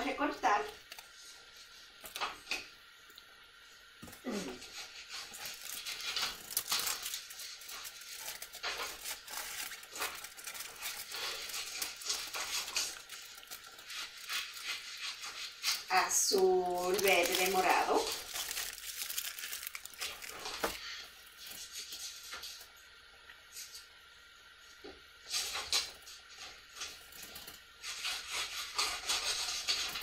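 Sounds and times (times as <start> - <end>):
scissors cutting paper: 4.6 - 18.8
paper rustling: 4.8 - 20.9.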